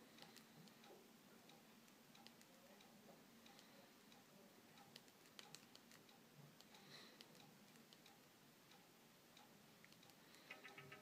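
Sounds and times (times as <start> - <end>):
fingertips tapping touchscreen: 0.1 - 0.8, 1.8 - 2.6, 4.8 - 11.0.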